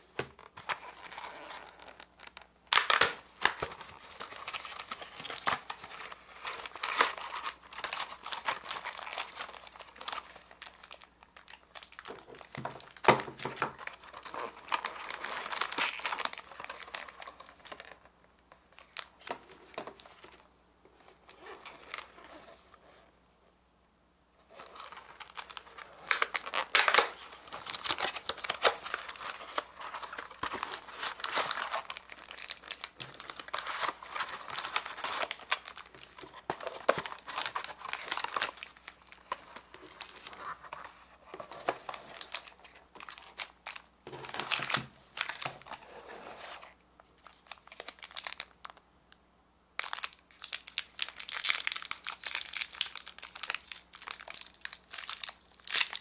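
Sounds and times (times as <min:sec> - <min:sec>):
plastic wrappers crinkling: 0:00.4 - 0:18.1, 0:24.5 - 0:40.8, 0:41.6 - 0:45.8, 0:47.2 - 0:48.8, 0:49.8 - 0:56.0
wrapper tearing open: 0:00.5 - 0:12.2, 0:13.8 - 0:18.0, 0:24.6 - 0:40.4, 0:47.2 - 0:48.8, 0:49.8 - 0:56.0.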